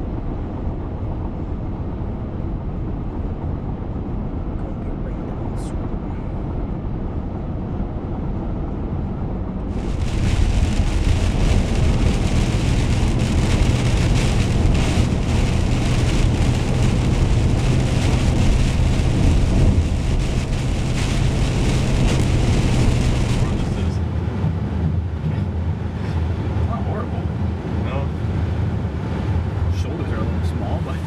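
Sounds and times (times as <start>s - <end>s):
car road and engine rumble: 0.0s - 31.0s
heavy rain hitting windshield: 9.7s - 24.0s.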